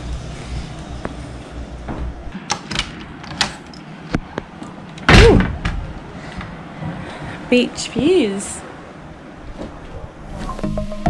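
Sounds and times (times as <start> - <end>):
door handle and latch clicks: 2.4 - 3.8.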